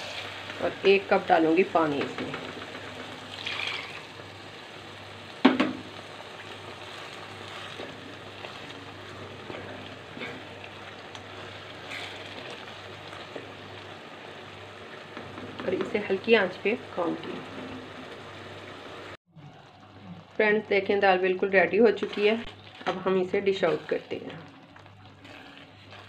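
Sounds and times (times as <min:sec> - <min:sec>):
spatula scraping pan: 0:00.0 - 0:00.6, 0:06.8 - 0:13.4, 0:21.8 - 0:24.3, 0:25.1 - 0:26.0
lentils sizzling in a pan: 0:00.0 - 0:26.0.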